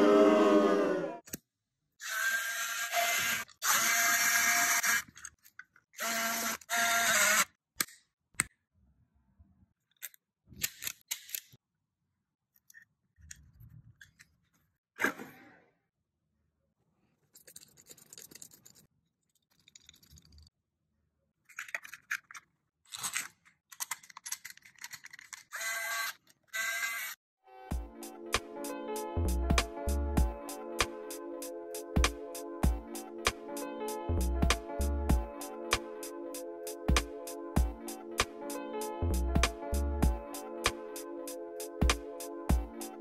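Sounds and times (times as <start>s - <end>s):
electric screwdriver whining: 2.0s - 5.2s, 6.0s - 7.5s, 25.5s - 27.2s.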